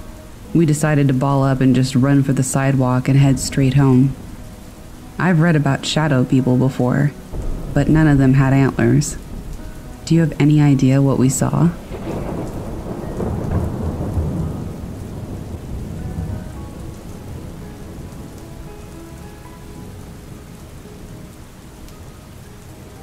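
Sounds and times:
low roll of thunder: 0:00.0 - 0:06.7, 0:07.3 - 0:22.2
steady rain: 0:00.0 - 0:23.0.

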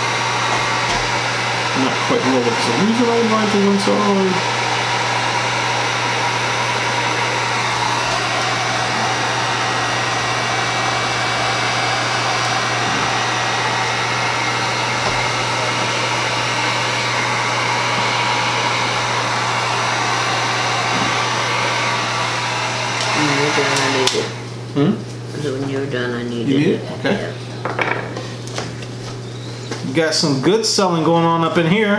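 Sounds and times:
heat gun blowing air: 0:00.0 - 0:24.5
low motor hum: 0:00.0 - 0:27.6.

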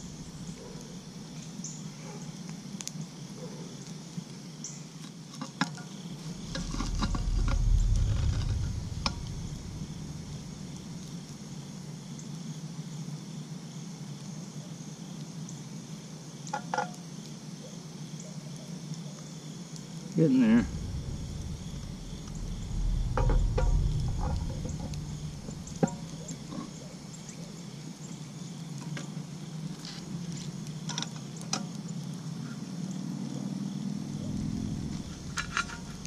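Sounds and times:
low rumble: 0:00.0 - 0:01.0, 0:06.2 - 0:11.7, 0:19.8 - 0:27.5, 0:34.0 - 0:36.0
wood fire crackling: 0:00.0 - 0:03.1, 0:05.9 - 0:12.2, 0:19.4 - 0:32.3, 0:34.1 - 0:36.0
crickets trilling: 0:00.0 - 0:36.0
metal clanks: 0:20.7 - 0:26.8.

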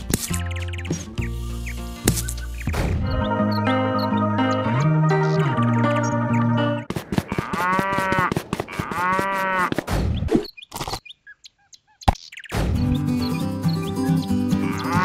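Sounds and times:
background music: 0:00.0 - 0:06.9, 0:12.7 - 0:15.0
cow mooing: 0:07.3 - 0:09.7, 0:14.6 - 0:15.0.

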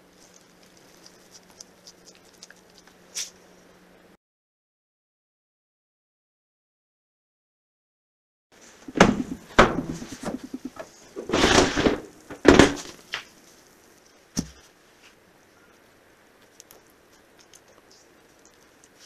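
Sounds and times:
pan rattling scrape: 0:08.9 - 0:12.8.

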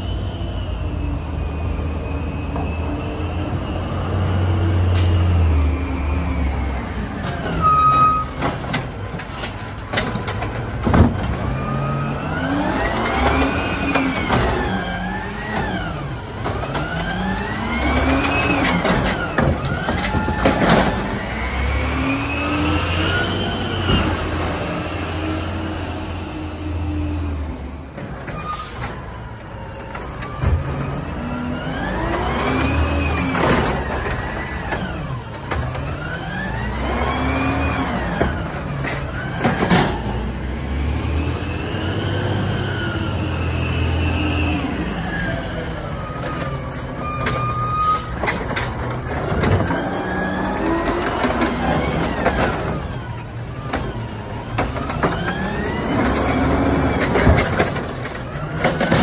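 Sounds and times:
metal clanks of cart and arm: 0:07.2 - 0:11.6, 0:45.1 - 0:59.0
truck engine revving: 0:11.0 - 0:27.4, 0:30.6 - 0:59.0.

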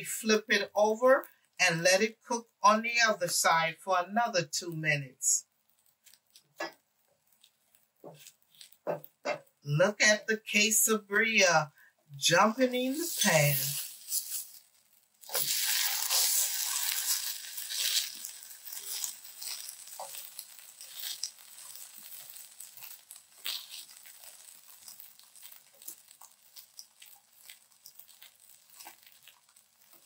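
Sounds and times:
crackling and popping: 0:00.0 - 0:03.4, 0:04.6 - 0:30.0
taco sizzling in a pan: 0:05.4 - 0:09.7, 0:10.9 - 0:30.0.

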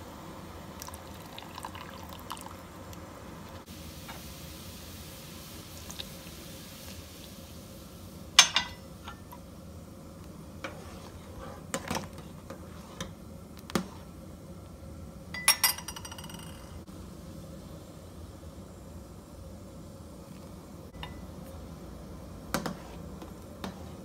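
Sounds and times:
metal spoon clinking on saucepan: 0:08.4 - 0:09.2, 0:15.4 - 0:16.8.

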